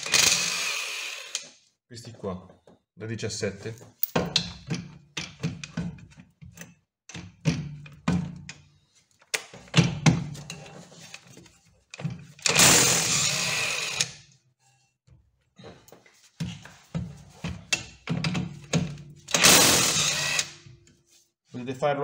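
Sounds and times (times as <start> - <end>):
impact wrench running: 0.0 - 1.5, 12.4 - 14.2, 18.8 - 20.6
metallic knocks and clicks: 4.0 - 8.6.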